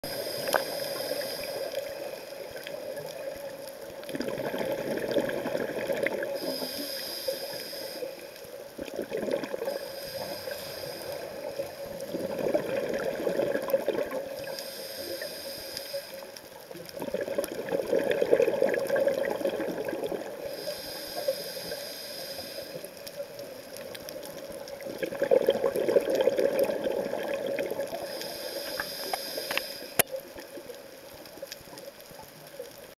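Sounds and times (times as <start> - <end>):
regulator hiss on inhale: 0.0 - 8.8, 9.5 - 12.2, 13.1 - 16.8, 20.2 - 24.8, 27.6 - 31.4
bubbling exhaled air: 4.1 - 8.1, 8.8 - 15.8, 16.9 - 22.8, 24.6 - 30.0.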